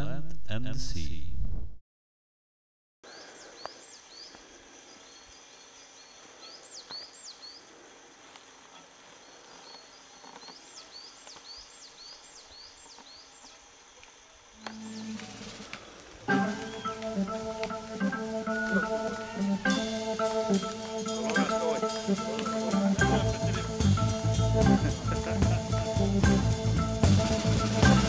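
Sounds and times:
faint forest background: 3.0s - 28.0s
small bird whistling calls: 14.6s - 17.3s.

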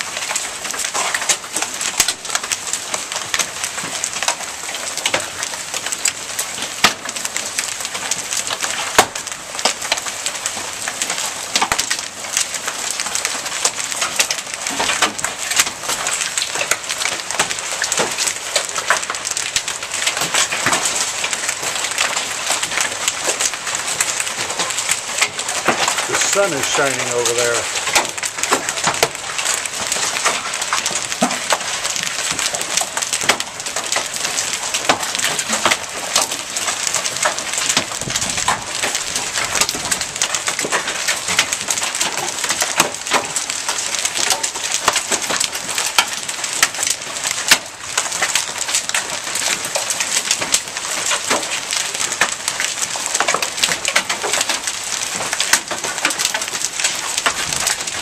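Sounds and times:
hail clicking: 0.0s - 58.0s
rain hissing: 12.2s - 53.6s.

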